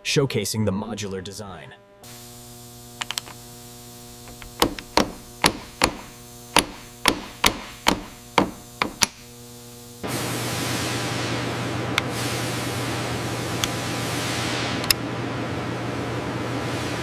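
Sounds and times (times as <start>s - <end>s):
steady electrical hum: 0.0s - 17.0s
punch tapping on steel: 4.3s - 9.2s.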